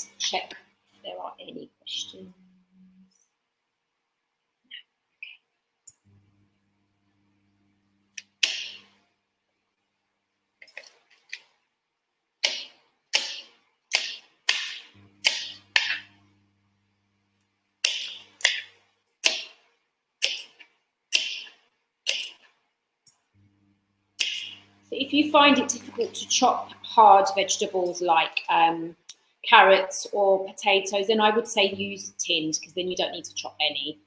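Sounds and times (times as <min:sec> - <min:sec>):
knife chopping carrots on board: 0:12.4 - 0:16.0, 0:17.8 - 0:19.6, 0:20.2 - 0:21.5, 0:22.1 - 0:22.4.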